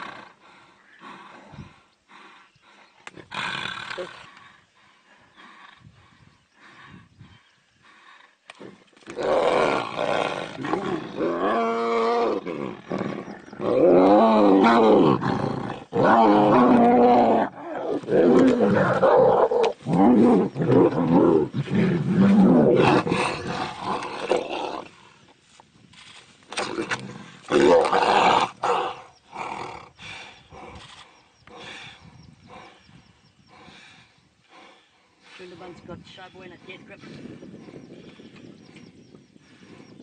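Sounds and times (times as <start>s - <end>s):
tigers growling and roaring: 8.3s - 25.3s, 26.5s - 35.0s.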